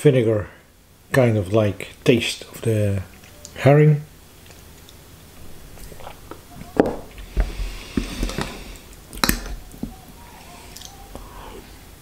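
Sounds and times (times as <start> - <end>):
wet chewing: 5.7 - 6.4.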